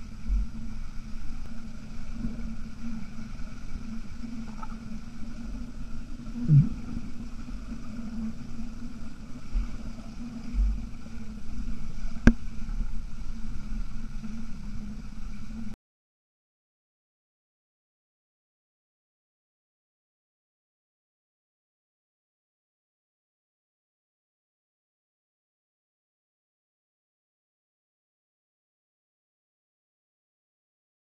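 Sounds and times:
muffled underwater rumble: 0.0s - 15.8s
water gurgle: 0.0s - 15.8s.

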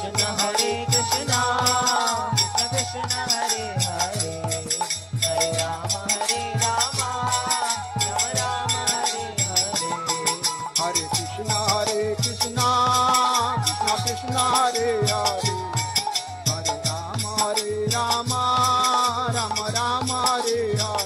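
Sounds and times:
bamboo flute melody: 0.0s - 4.0s, 7.5s - 18.5s
hand cymbals beat: 0.0s - 21.0s
harmonium: 0.0s - 21.0s.

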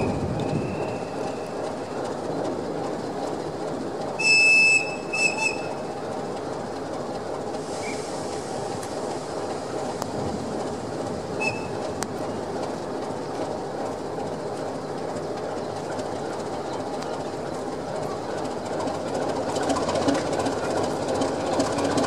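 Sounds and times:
high wheel squeal: 0.0s - 2.0s, 4.2s - 5.9s, 11.3s - 11.9s
train rumbling on rails: 0.0s - 22.0s.

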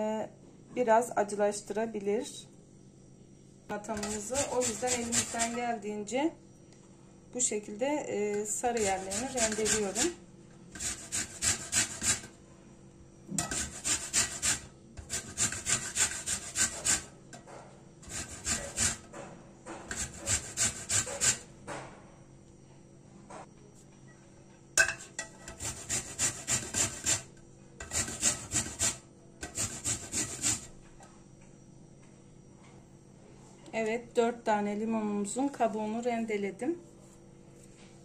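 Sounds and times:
lemon rind grating scrapes: 3.9s - 5.6s, 8.7s - 12.3s, 13.4s - 17.1s, 18.0s - 19.1s, 19.9s - 21.5s, 25.5s - 30.7s.

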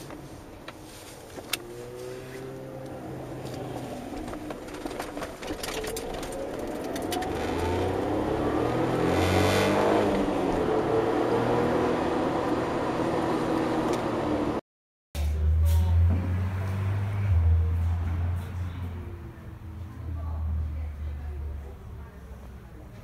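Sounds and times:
car engine accelerating: 1.4s - 14.6s.

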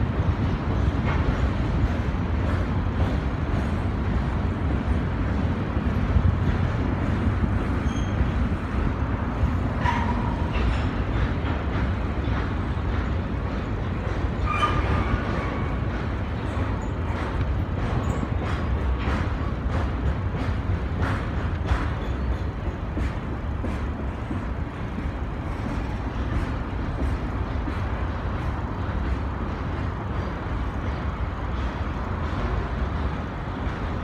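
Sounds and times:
clatter of train wheels: 0.0s - 34.0s
train rumbling across bridge: 0.0s - 34.0s
metallic squeals: 14.4s - 15.3s.

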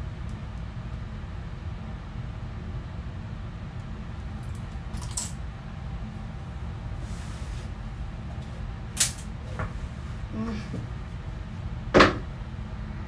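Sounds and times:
small clinks and rustles: 4.4s - 5.4s.

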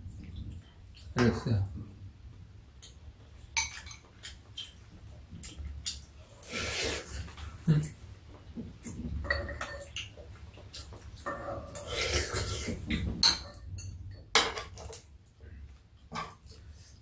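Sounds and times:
utensils clinking on bowls: 9.2s - 10.1s.

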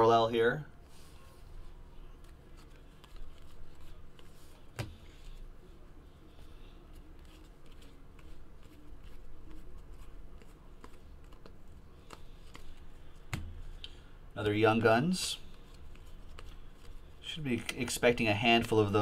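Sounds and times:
low steady hum: 0.0s - 19.0s
cards rustling and clicking: 2.2s - 5.4s, 6.4s - 14.0s, 14.7s - 19.0s.

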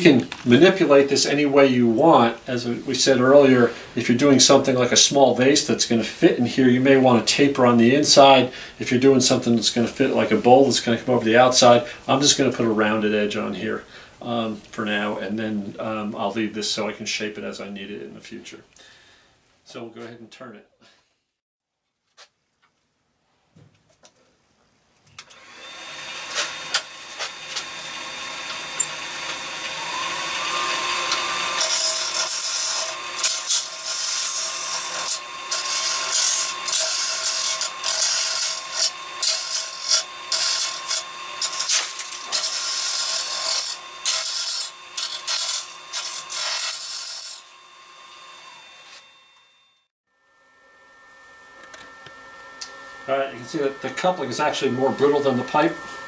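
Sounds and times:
turning tool cutting plastic: 25.2s - 49.5s
wood lathe spinning: 25.2s - 49.6s, 51.6s - 56.0s.

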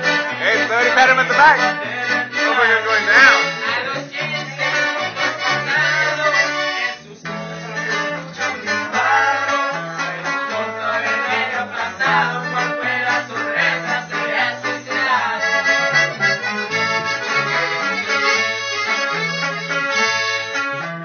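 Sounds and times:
bass line: 0.0s - 21.0s
button accordion: 0.0s - 21.0s
guitars strummed and plucked: 0.0s - 21.0s.

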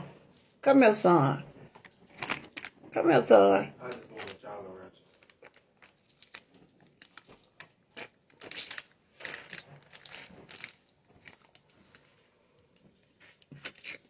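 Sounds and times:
plastic sleeve crinkling: 1.6s - 3.0s, 3.8s - 14.0s
crunching and sucking: 5.1s - 14.0s.

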